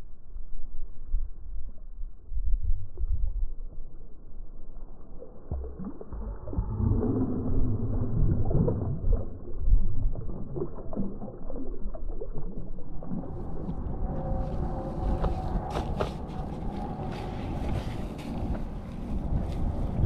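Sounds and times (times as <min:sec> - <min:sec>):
low rumble: 0:00.0 - 0:20.0
water splashing and sloshing: 0:04.6 - 0:20.0.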